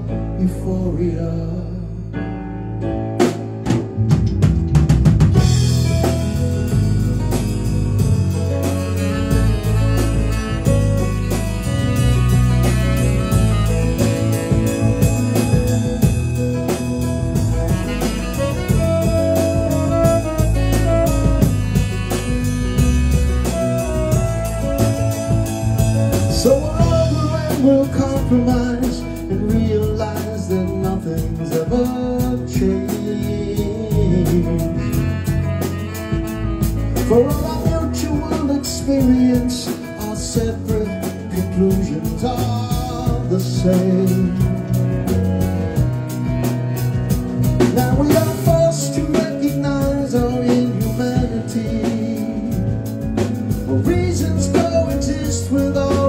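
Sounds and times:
drum kit: 0.0s - 56.0s
keyboard: 0.0s - 56.0s
electric guitar: 2.7s - 56.0s
saxophone: 5.3s - 56.0s
melody line: 5.4s - 29.0s.

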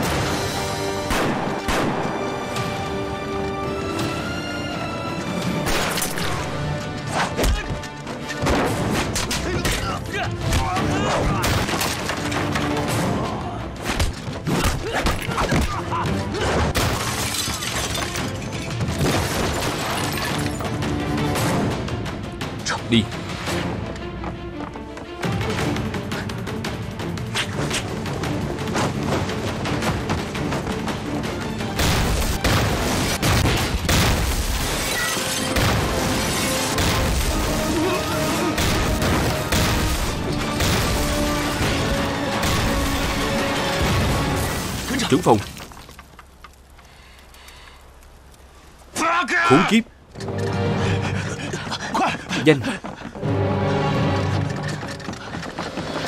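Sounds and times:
dramatic background music: 0.0s - 45.4s, 50.2s - 56.0s
gunfire: 1.0s - 2.3s, 35.5s - 44.2s
crashing shattering impacts: 16.6s - 20.7s, 31.8s - 46.1s.

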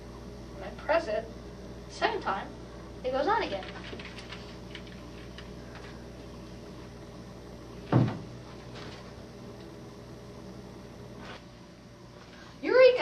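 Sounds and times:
steady low hum: 0.0s - 13.0s
dull thump on furniture: 7.9s - 8.3s.

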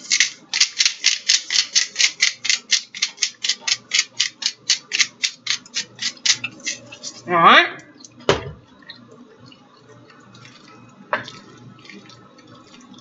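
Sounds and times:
spice grinder rasping: 0.0s - 7.3s.

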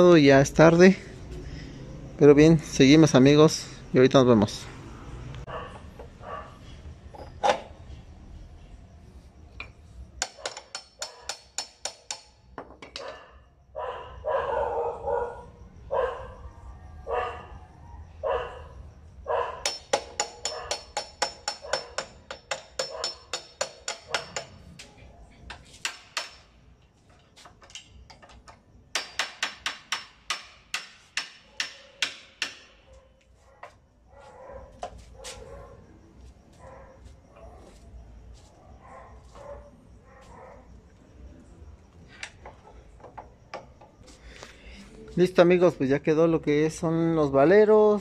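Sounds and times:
dog barking: 5.5s - 6.7s, 11.1s - 11.4s, 13.0s - 19.7s, 22.8s - 23.2s, 32.8s - 36.0s, 36.6s - 40.8s
hammer striking metal: 9.6s - 12.4s, 19.6s - 24.8s, 25.5s - 26.6s, 28.9s - 32.8s.

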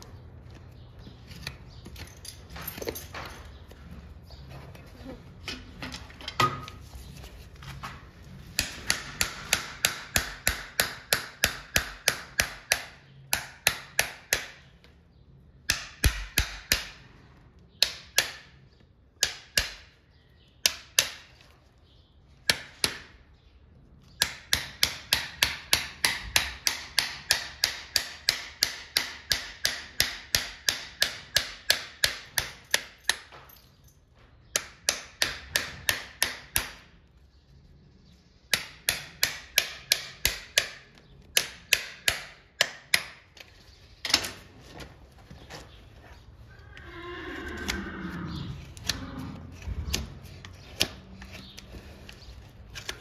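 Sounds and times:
hammer tapping horseshoe nails: 8.5s - 14.7s, 15.6s - 17.1s, 17.7s - 20.0s, 20.6s - 21.5s, 22.4s - 23.1s, 24.1s - 33.7s, 34.4s - 36.9s, 38.5s - 44.4s.

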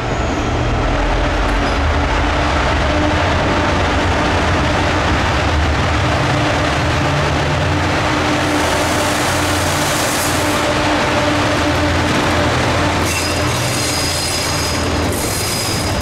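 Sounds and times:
train engine drone: 0.0s - 16.0s
train rushing noise: 0.0s - 16.0s.

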